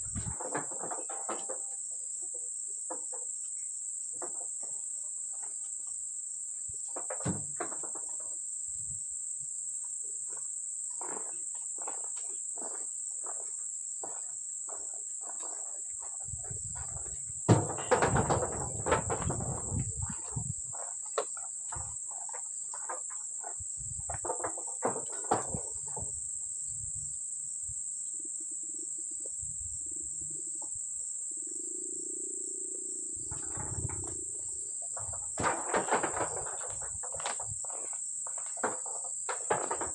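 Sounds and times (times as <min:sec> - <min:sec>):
insects droning: 0:00.0 - 0:39.9
fruit bunches landing on truck: 0:06.9 - 0:08.3, 0:15.3 - 0:26.2, 0:33.2 - 0:39.9
heavy thumps: 0:15.9 - 0:26.3.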